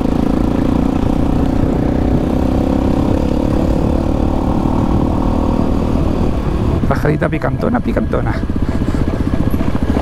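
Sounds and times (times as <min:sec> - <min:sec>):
motorcycle engine running: 0:00.0 - 0:10.0.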